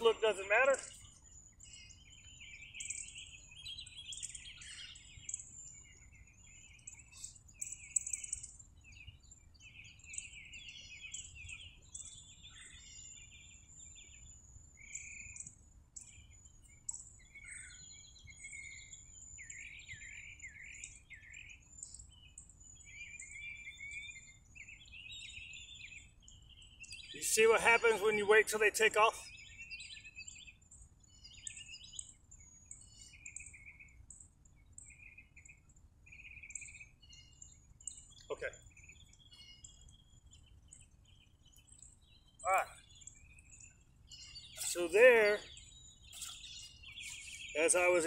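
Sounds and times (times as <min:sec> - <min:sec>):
songbirds chirping and trilling: 0:00.0 - 0:48.0.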